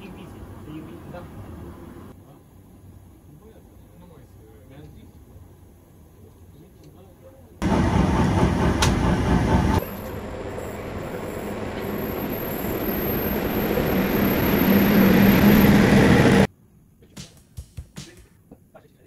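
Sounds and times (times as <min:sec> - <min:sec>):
low hum: 0:07.6 - 0:16.5
train running on rails: 0:07.6 - 0:16.5.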